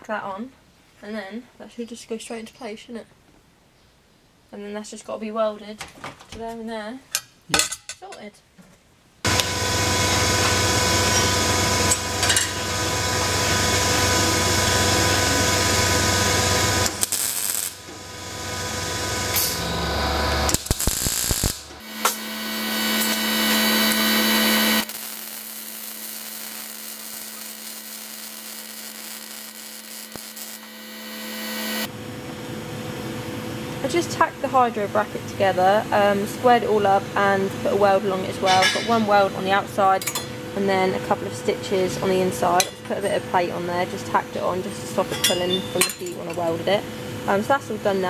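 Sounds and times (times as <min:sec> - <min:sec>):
welder arc buzzing: 0:09.3 - 0:34.0.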